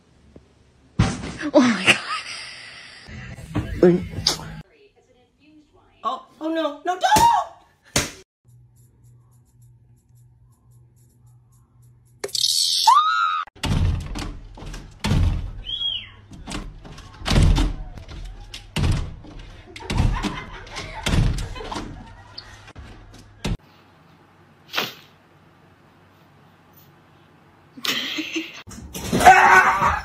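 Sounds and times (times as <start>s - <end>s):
glass door banging against frame: 13.6s - 15.6s, 18.8s - 19.3s, 19.9s - 22.0s.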